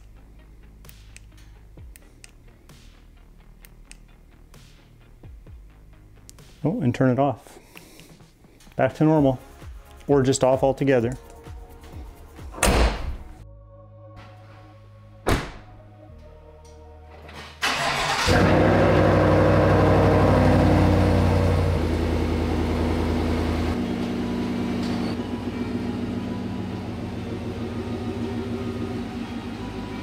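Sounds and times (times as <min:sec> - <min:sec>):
truck door thud: 0:12.6 - 0:13.3, 0:15.3 - 0:15.8
truck engine starting and idling: 0:17.1 - 0:30.0.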